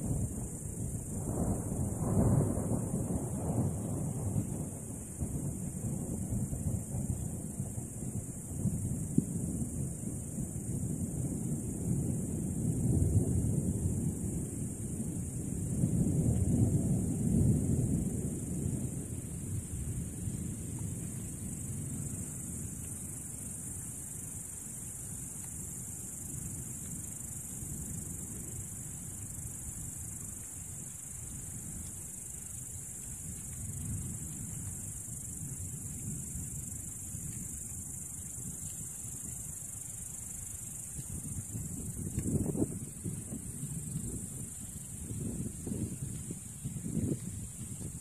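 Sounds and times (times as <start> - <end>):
crickets chirring: 0.0 - 48.0.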